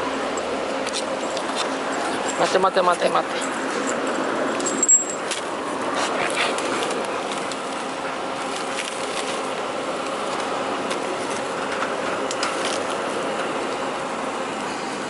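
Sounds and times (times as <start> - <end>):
street noise hum: 0.0 - 15.0
plastic bag rustling and crinkling: 6.2 - 11.5.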